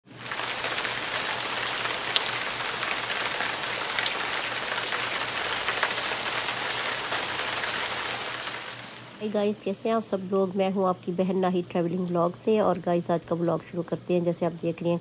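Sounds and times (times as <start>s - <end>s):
heavy rain falling: 0.1s - 10.4s
water running off a roof: 0.1s - 13.0s.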